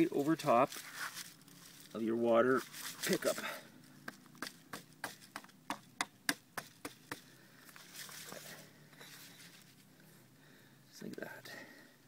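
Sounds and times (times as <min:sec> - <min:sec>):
faint scraping rustle: 0:00.0 - 0:04.0, 0:07.6 - 0:10.2.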